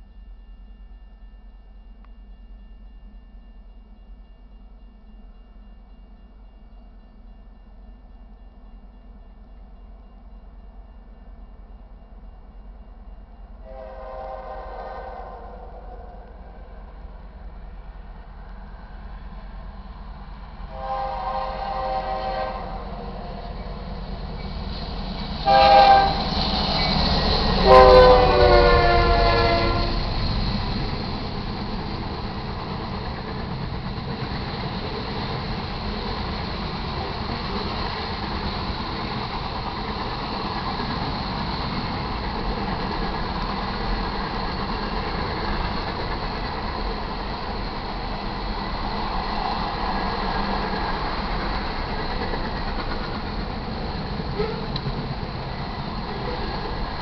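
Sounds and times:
locomotive air horn blasts: 0:13.6 - 0:16.2, 0:20.7 - 0:23.4, 0:25.4 - 0:26.3, 0:27.6 - 0:30.0
freight cars rumbling on rails: 0:16.3 - 0:57.0.

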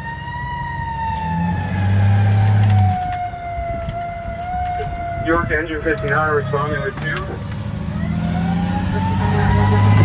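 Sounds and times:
fire truck siren wailing: 0:00.0 - 0:10.0
truck engine rumble: 0:00.0 - 0:10.0
deep horn blast: 0:08.8 - 0:10.0.

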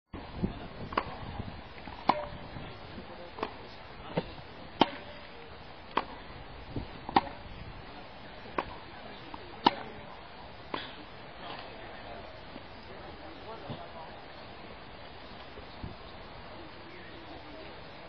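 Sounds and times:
racket hitting tennis ball: 0:00.9 - 0:01.2, 0:01.8 - 0:02.5, 0:03.3 - 0:07.5, 0:08.5 - 0:11.0.

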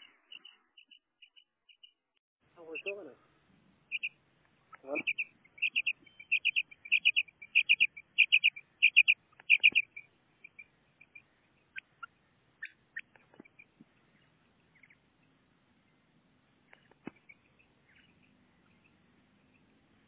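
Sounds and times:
faint chirps and clicks: 0:00.0 - 0:03.1, 0:03.8 - 0:20.0
quail calling: 0:02.6 - 0:03.2, 0:03.9 - 0:15.1, 0:16.6 - 0:19.8.

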